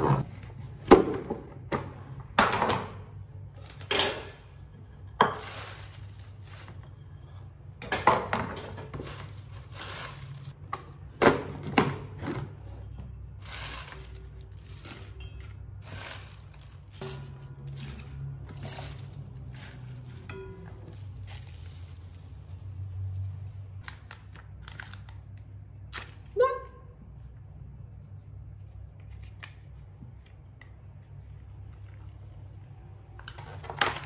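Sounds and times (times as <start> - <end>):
wet leaves rustling: 21.0 - 23.7.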